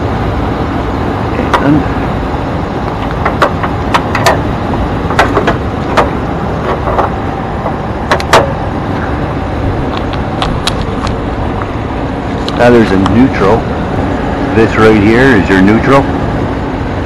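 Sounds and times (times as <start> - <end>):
truck engine idling: 0.0 - 17.0
metallic clicks and knocks: 2.9 - 4.5, 5.1 - 8.6.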